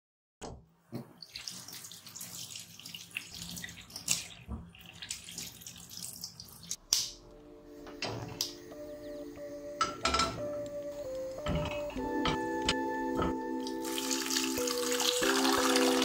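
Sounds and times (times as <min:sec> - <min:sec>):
tap water running into sink: 0:00.9 - 0:06.8, 0:11.4 - 0:16.0
hands scrubbing potatoes: 0:01.0 - 0:06.8
water splashing: 0:01.0 - 0:06.8, 0:13.5 - 0:16.0.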